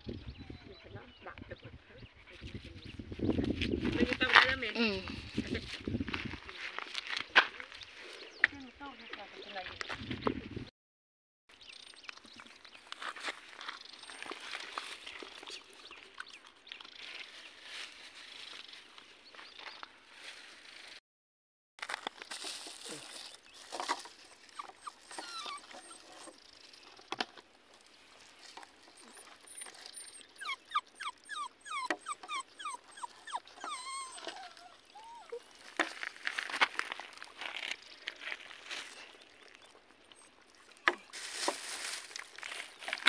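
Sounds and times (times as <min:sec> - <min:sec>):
puppy whimpering: 0:24.5 - 0:26.0, 0:29.0 - 0:35.5
plastic bag rustling: 0:41.1 - 0:43.0.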